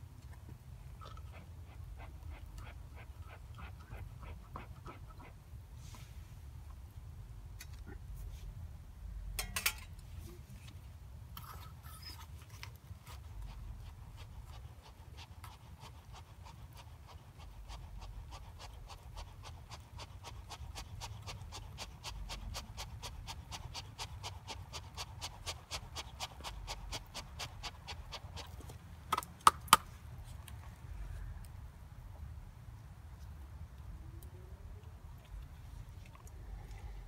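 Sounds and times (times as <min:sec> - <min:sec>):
dog panting: 0:01.1 - 0:05.4, 0:13.2 - 0:28.6.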